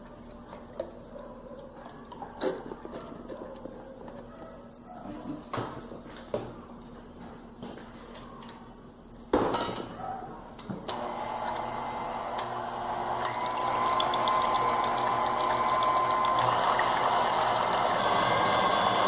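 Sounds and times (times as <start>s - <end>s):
stand mixer whisking cream: 11.0s - 19.0s.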